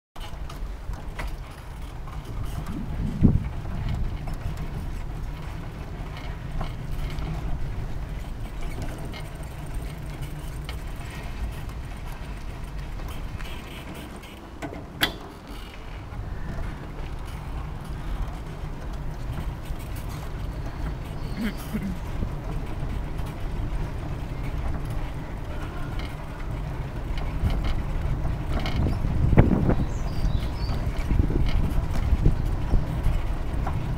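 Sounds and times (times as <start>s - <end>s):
faint rattling clicks: 0.2s - 33.9s
low rumble of moving bike: 0.2s - 33.9s
bicycle freewheel ticking: 0.3s - 14.0s
wind buffeting microphone: 0.3s - 14.6s, 15.8s - 33.9s.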